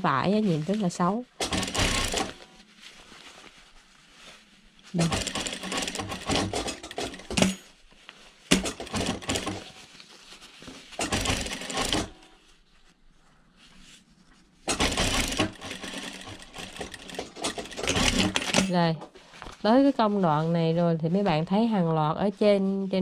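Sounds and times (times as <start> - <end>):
sewing machine stitching: 1.4 - 2.4, 5.0 - 7.6, 8.5 - 9.7, 11.0 - 12.2, 14.7 - 18.8.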